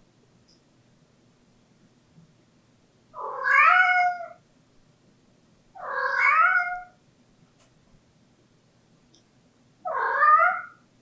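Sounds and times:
cat meowing: 3.2 - 4.4, 5.8 - 7.0, 9.9 - 10.8.

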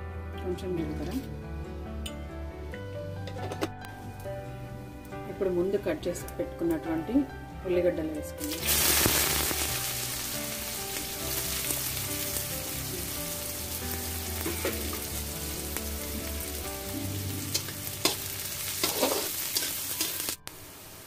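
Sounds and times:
onions sizzling in hot oil: 8.4 - 21.0.

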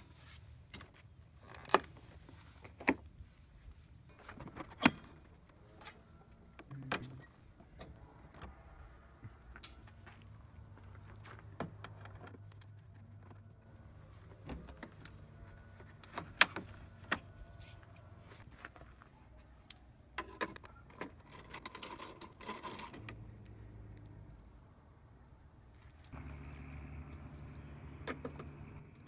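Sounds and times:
clicks of tools and plastic: 19.6 - 24.5.

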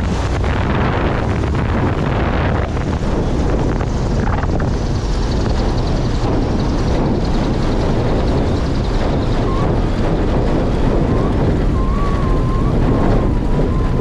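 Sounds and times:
plane piston engine running: 0.0 - 14.0
wind rumbling on microphone: 0.0 - 14.0.

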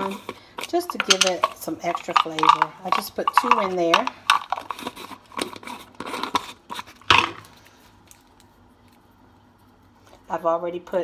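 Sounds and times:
plastic lid scraping on jar: 0.0 - 7.4
glass jar clattering: 0.8 - 4.8.

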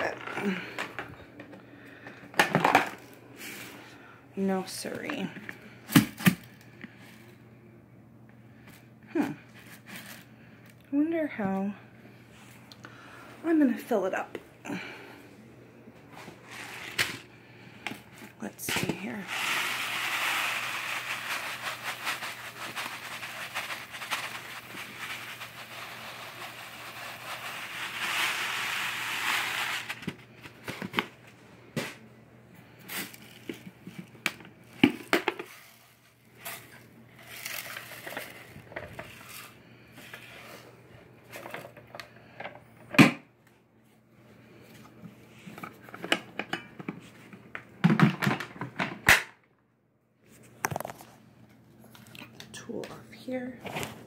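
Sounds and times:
grains and packaging rustling: 16.1 - 31.2, 32.7 - 41.7
rice pouring onto carpet: 19.2 - 30.0.

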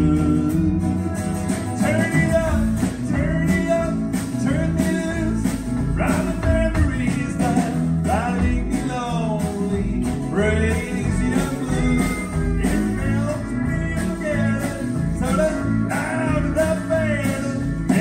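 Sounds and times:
country band playing: 0.0 - 18.0.

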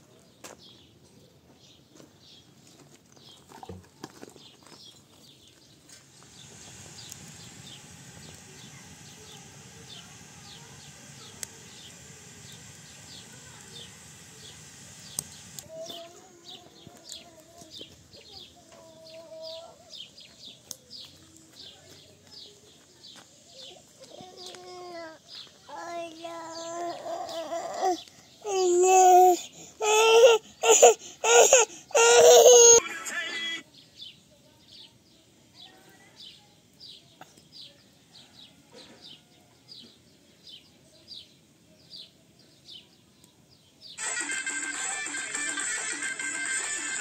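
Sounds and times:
steady hiss: 5.3 - 33.6, 44.0 - 47.0
chicks chirping: 6.1 - 15.7.

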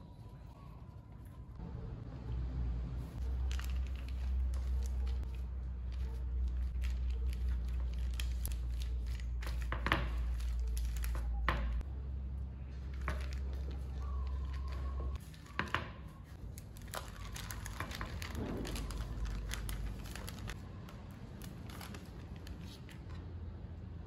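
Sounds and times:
plastic bag crinkling: 3.2 - 11.8, 12.9 - 15.5, 16.3 - 23.1.

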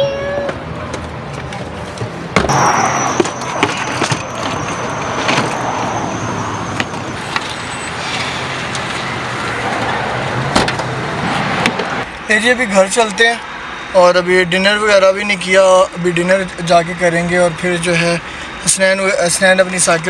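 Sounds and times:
vehicle hum: 0.0 - 20.0
thin high whine: 2.5 - 6.6.

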